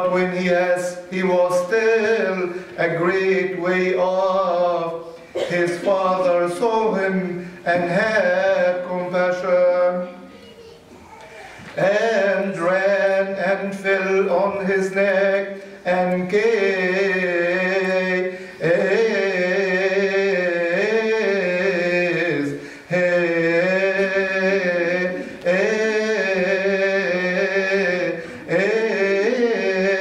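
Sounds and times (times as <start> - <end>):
man chanting: 0.0 - 10.3, 11.7 - 30.0
man breathing: 18.3 - 18.6, 22.6 - 22.9, 28.2 - 28.5.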